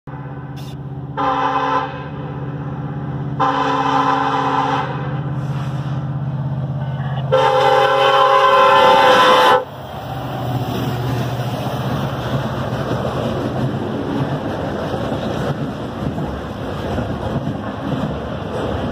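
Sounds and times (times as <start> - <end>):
diesel engine drone: 0.1 - 18.9
locomotive horn blasts: 0.6 - 2.3, 3.4 - 5.2, 7.3 - 9.7.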